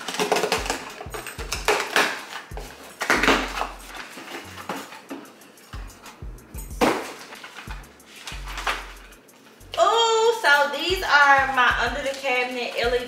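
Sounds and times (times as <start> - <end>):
packaging rustling: 0.0 - 5.7, 6.9 - 9.5
background music with bass: 0.5 - 1.8, 2.5 - 4.9, 5.7 - 7.1, 7.7 - 9.8, 10.9 - 12.1.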